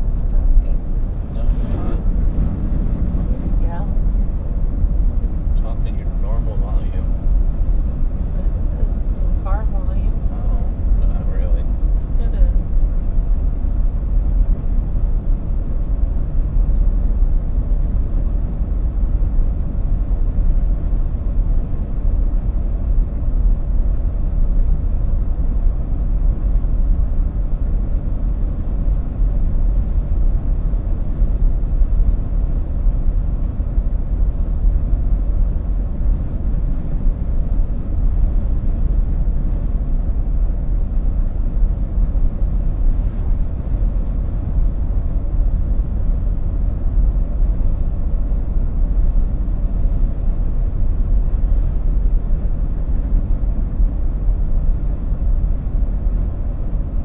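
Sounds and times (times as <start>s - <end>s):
car engine cruising: 0.0s - 57.0s
tyres rumbling on road: 0.0s - 57.0s.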